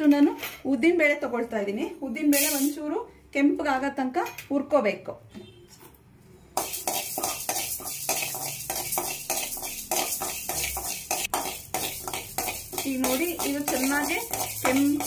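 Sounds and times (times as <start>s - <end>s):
lentils rattling in pan: 6.6s - 15.0s
metal spatula scraping pan: 6.6s - 15.0s.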